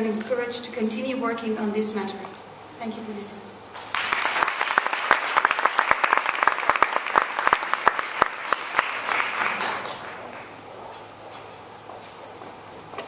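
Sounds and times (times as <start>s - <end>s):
audience applause: 3.8s - 10.6s.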